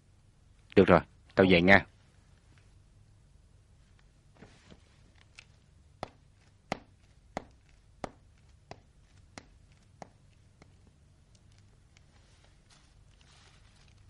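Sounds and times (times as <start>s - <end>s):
hard-soled footsteps on hard floor: 6.0s - 11.0s.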